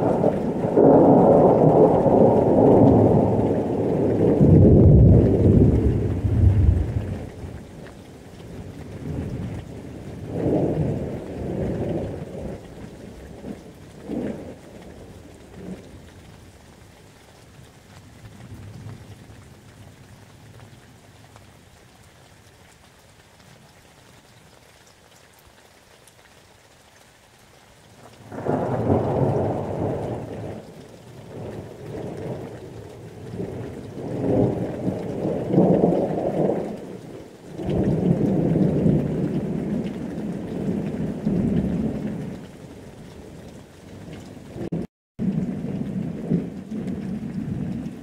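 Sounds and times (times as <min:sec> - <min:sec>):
rolling thunder: 0:00.0 - 0:07.6, 0:28.2 - 0:30.7, 0:31.3 - 0:42.5, 0:44.6 - 0:48.0
rain falling: 0:00.0 - 0:48.0.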